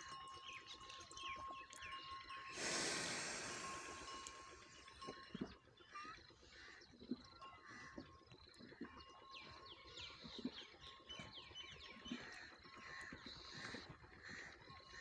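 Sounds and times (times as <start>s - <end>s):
birds chirping: 0.0s - 15.0s
animal gulping water: 6.3s - 14.5s.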